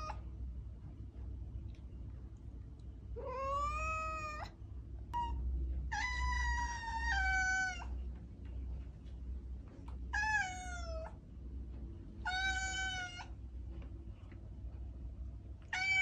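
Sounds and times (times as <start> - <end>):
steady low hum: 0.0 - 16.0
cat meowing: 3.2 - 4.5, 5.2 - 8.0, 10.1 - 11.2, 12.2 - 13.4, 15.7 - 16.0.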